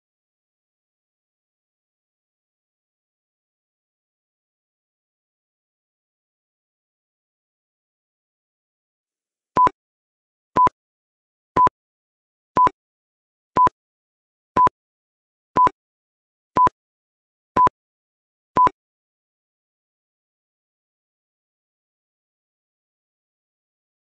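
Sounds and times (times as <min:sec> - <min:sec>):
countdown timer beeps: 0:15.6 - 0:15.8.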